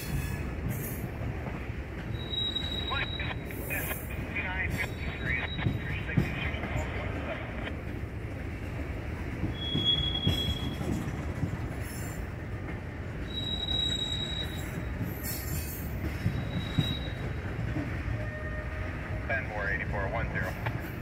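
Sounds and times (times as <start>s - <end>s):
freight train wheels rumbling on rail: 0.0s - 21.0s
high wheel squeals: 2.1s - 3.5s, 9.5s - 11.0s, 13.2s - 17.4s.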